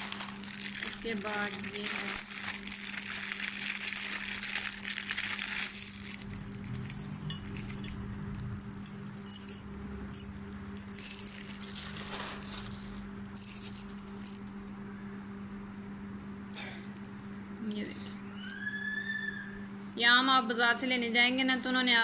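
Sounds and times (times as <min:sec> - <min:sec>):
plastic bag crinkling: 0:00.0 - 0:07.0, 0:10.9 - 0:14.5
steady low hum: 0:00.0 - 0:22.0
bangles clinking and jingling: 0:04.6 - 0:14.7.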